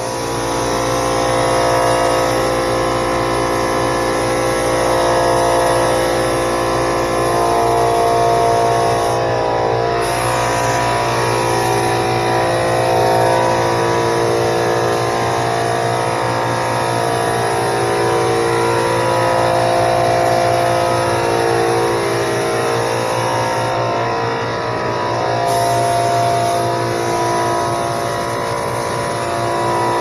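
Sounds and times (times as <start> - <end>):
spray gun hissing: 0.0 - 9.3, 10.0 - 13.8, 25.5 - 30.0.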